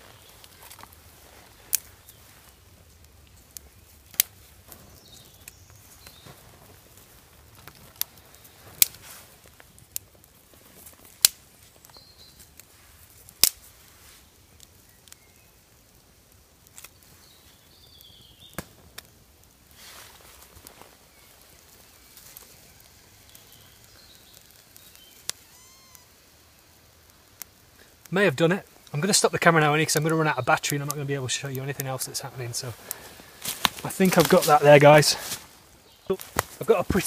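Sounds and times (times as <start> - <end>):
fire steel scraping: 0.0 - 14.3, 19.6 - 25.7, 28.7 - 37.0.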